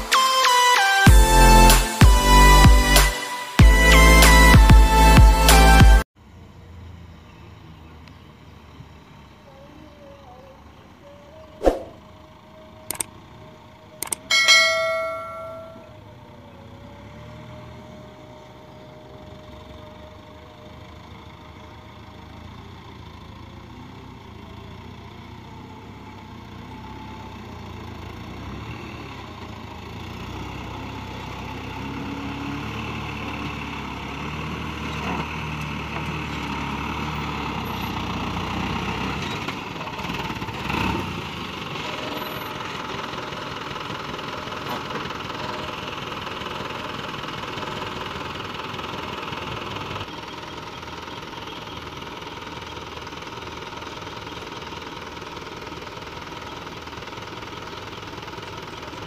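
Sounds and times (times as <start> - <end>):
truck engine running: 1.1 - 59.0
clicks: 14.0 - 14.4
short bell ding: 14.3 - 15.9.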